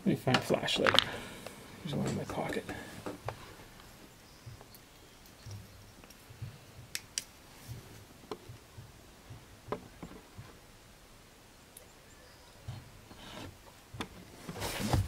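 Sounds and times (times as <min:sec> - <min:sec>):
small hard objects clicking: 0:00.7 - 0:01.2.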